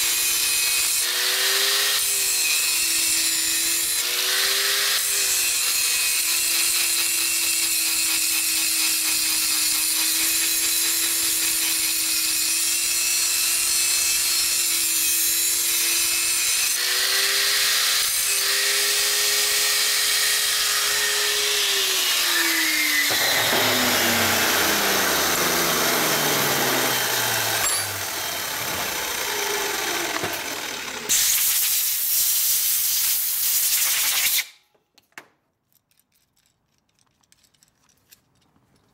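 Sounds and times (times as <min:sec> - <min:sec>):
angle grinder grinding metal: 0:00.0 - 0:33.4
loud hiss: 0:31.1 - 0:34.4.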